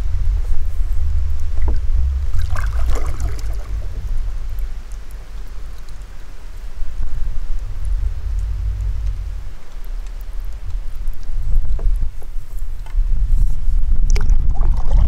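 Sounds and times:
steady low rumble: 0.0 - 15.0
water trickling drips: 0.4 - 13.2
paddle splashing in water: 1.6 - 4.0.

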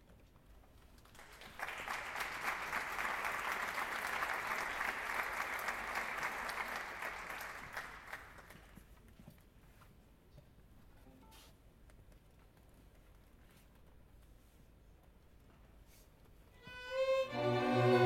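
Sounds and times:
audience applauding: 1.1 - 8.8.

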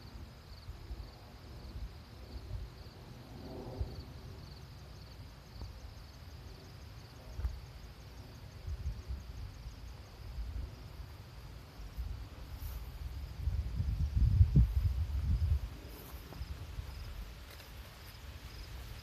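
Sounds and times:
insects chirping: 0.0 - 19.0
wind buffeting microphone: 12.0 - 17.4.

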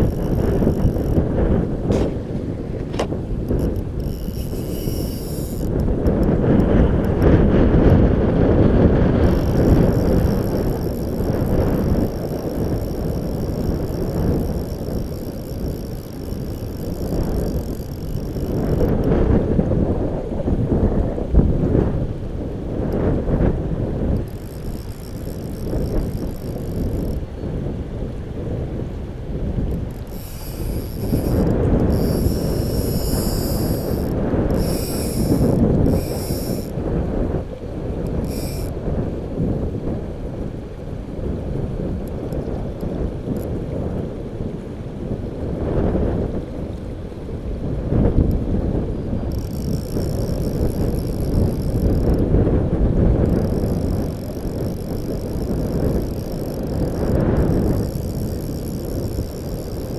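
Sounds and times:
fly reel drag buzzing: 0.0 - 19.8, 22.8 - 27.7, 29.5 - 39.0, 48.1 - 59.9
wind buffeting microphone: 0.0 - 59.9.

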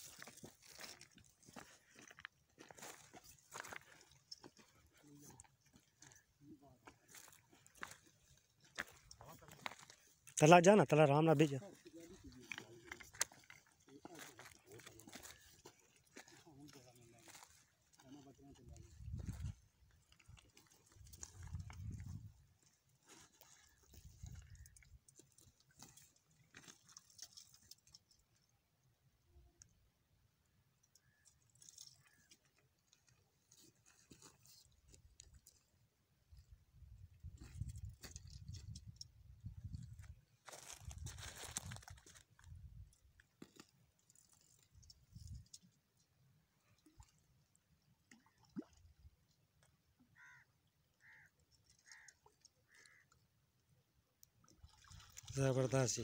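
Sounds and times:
faint bird calls: 50.0 - 53.2.

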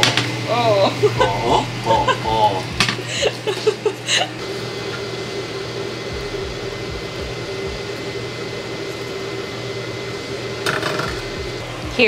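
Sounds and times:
fan or motor whirring: 0.0 - 12.0
soft low thumps: 1.2 - 3.3, 6.1 - 8.0, 11.1 - 12.0.

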